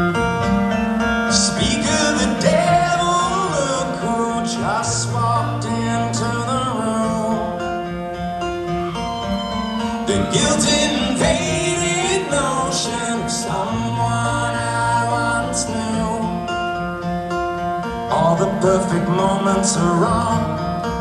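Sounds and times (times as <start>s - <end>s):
acoustic guitar playing: 0.0s - 21.0s
wordless singing: 1.3s - 7.5s, 10.0s - 16.5s, 18.1s - 20.6s.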